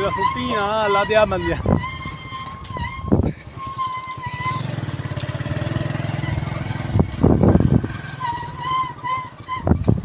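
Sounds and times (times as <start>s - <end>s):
wavering high tone: 0.0s - 5.0s, 7.8s - 9.9s
motorcycle engine putter: 0.0s - 10.0s.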